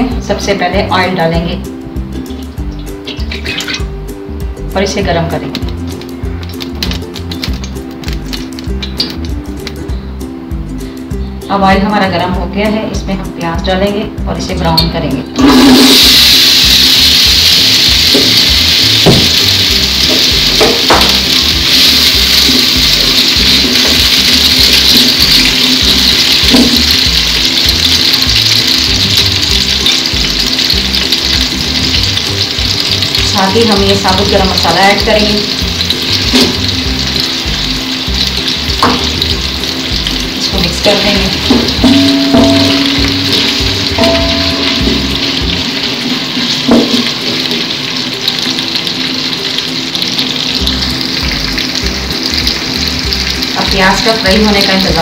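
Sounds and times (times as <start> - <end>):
background music with low notes: 0.0 - 55.0
onions sizzling in hot oil: 0.0 - 55.0
knock: 19.1 - 19.4.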